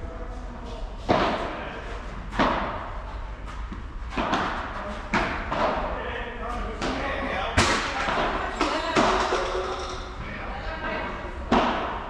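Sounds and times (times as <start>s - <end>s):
ball struck by rackets: 4.1s - 5.8s, 11.5s - 12.0s.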